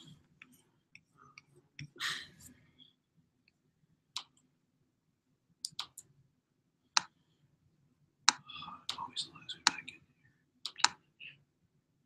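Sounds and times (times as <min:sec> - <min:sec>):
computer mouse clicks: 0:05.6 - 0:06.1.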